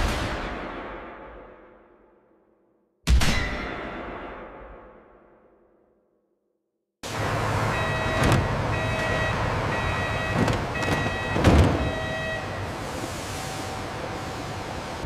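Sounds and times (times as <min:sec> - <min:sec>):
machinery rumble: 0:07.0 - 0:15.0
electronic warning beeper: 0:07.6 - 0:12.8
thuds: 0:10.3 - 0:12.0.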